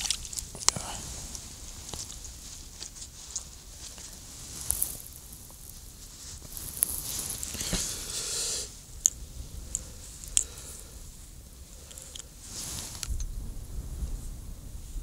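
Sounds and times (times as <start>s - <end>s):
soft wet squishing: 0.0s - 5.8s.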